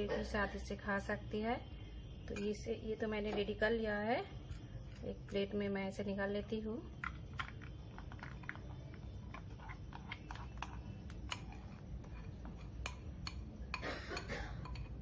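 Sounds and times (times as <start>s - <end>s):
metal spoon scraping ceramic bowl: 9.2s - 15.0s.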